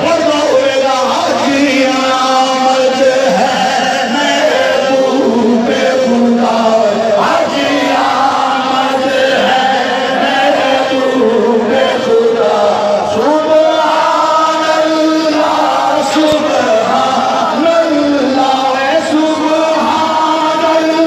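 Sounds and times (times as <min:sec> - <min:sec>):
crowd of men chanting: 0:00.0 - 0:21.0.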